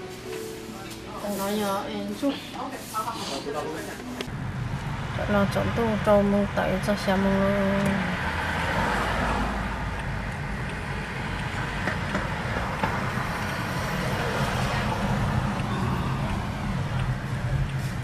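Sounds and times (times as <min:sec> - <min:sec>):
car road and engine noise: 0:04.2 - 0:18.0.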